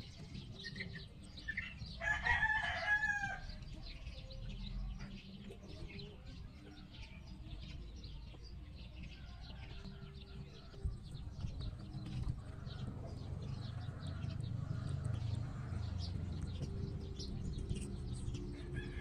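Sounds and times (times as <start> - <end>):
rooster crowing: 2.0 - 3.5, 18.6 - 19.0.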